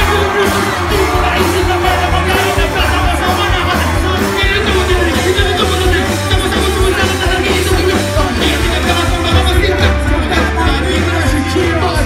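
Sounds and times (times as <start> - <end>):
live band music: 0.0 - 12.0
person rapping into a microphone: 0.0 - 12.0.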